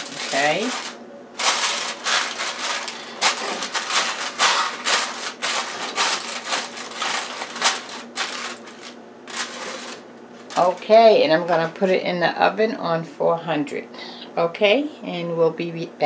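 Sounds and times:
aluminum foil crinkling: 0.0 - 11.7.

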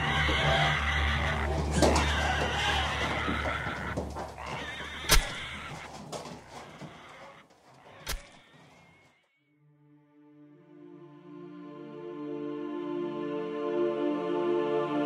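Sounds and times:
pig squealing: 0.0 - 9.4.

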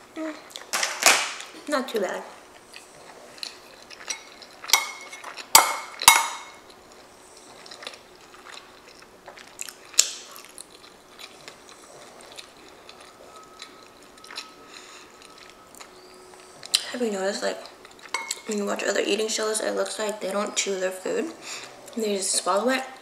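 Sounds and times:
quiet chewing: 2.0 - 18.9, 19.8 - 23.0
metal spoon clinking on bowl: 18.1 - 18.5.

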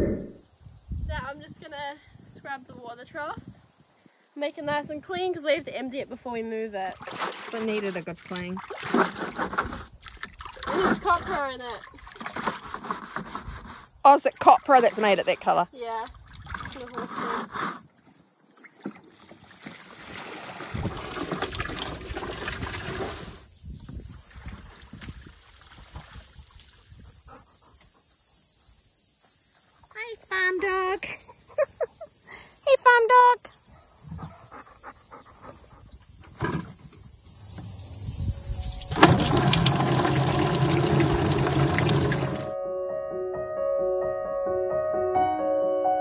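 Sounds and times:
wind buffeting microphone: 0.0 - 3.8, 20.7 - 27.4, 37.0 - 39.6
hose water splashing into trough: 6.9 - 15.6, 16.2 - 17.8, 18.8 - 23.4, 24.2 - 26.9, 38.9 - 42.6
dog sniffing: 34.0 - 36.0.

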